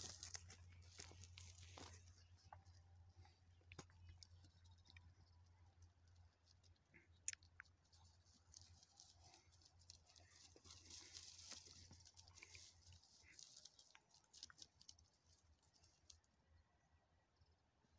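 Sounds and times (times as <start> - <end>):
dog digging in dry soil: 7.9 - 16.2.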